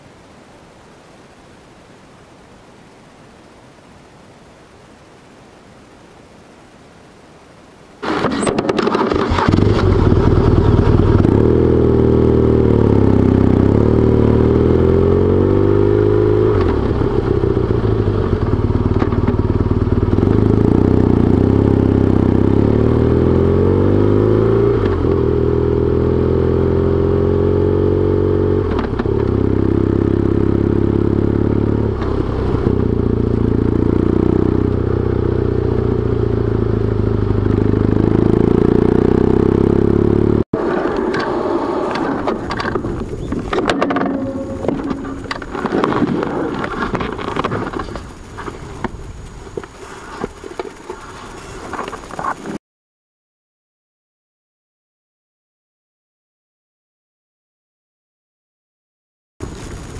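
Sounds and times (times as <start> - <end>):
motorcycle engine revving: 8.0 - 48.4.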